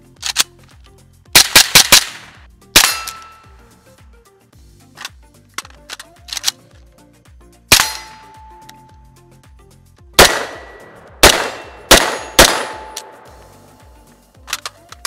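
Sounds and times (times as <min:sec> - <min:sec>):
pistol shots with echo: 0:01.4 - 0:03.4, 0:07.7 - 0:08.5, 0:10.2 - 0:13.3.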